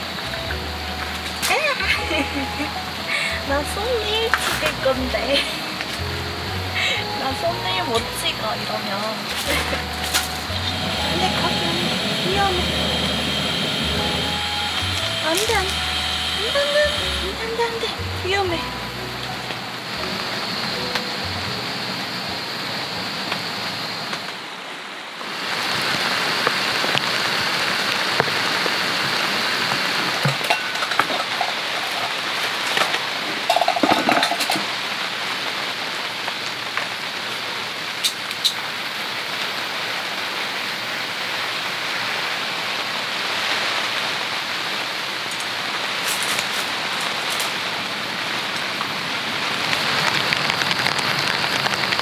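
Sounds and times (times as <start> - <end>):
rain on a tent: 0.0 - 52.0
camping gear clinking: 30.3 - 34.7.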